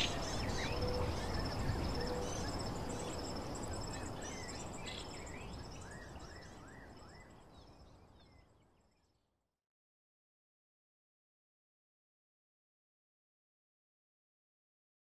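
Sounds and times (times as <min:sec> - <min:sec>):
insects trilling: 0:00.0 - 0:07.2
birds chirping: 0:00.0 - 0:08.5
steady background hiss: 0:00.0 - 0:08.9.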